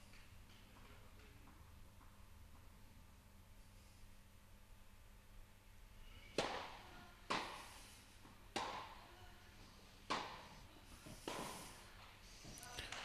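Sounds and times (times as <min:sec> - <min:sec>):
tennis ball struck by racket: 0:06.4 - 0:09.0, 0:10.1 - 0:10.4, 0:11.2 - 0:11.8.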